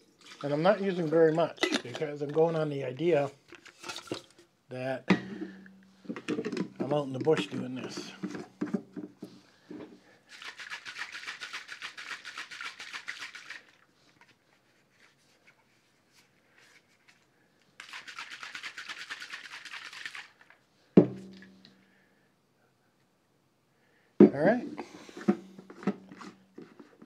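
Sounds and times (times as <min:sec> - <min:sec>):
water sloshing in a shaker: 0:00.0 - 0:02.6, 0:10.1 - 0:20.6.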